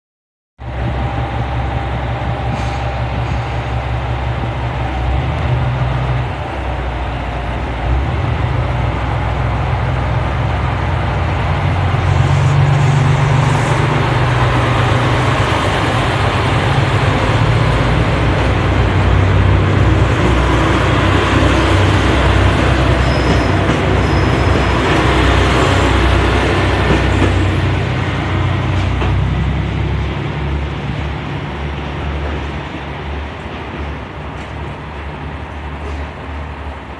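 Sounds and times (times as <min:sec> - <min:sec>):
diesel railcar engines running: 0:00.6 - 0:36.9.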